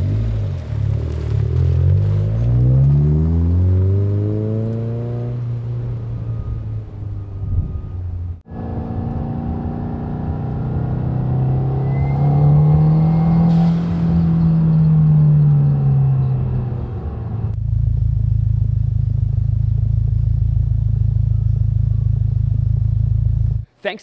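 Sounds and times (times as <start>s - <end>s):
car engine revving: 0.0s - 23.6s
engine idling deep rumble: 13.6s - 23.6s.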